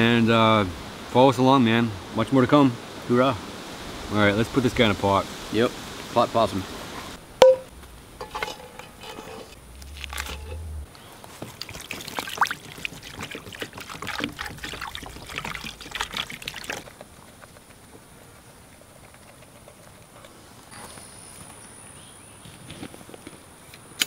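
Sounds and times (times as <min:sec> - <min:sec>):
water pouring and splashing: 0:08.2 - 0:17.0.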